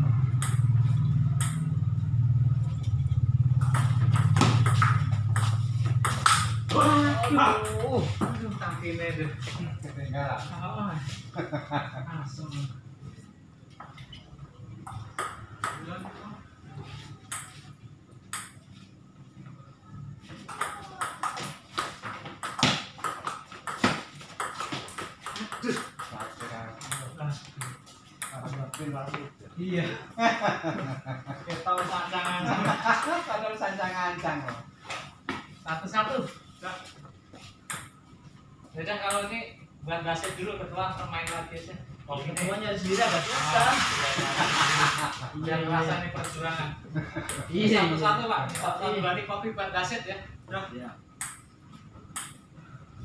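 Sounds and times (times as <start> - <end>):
table tennis ball hits: 0.3 - 1.7, 3.6 - 8.4, 14.8 - 16.1, 17.3 - 18.6, 20.4 - 28.9, 37.6 - 38.0, 48.5 - 48.8, 51.2 - 51.5, 52.1 - 52.5
table tennis ball clicking: 1.3 - 1.7, 3.6 - 4.9, 51.2 - 51.5, 52.1 - 52.4.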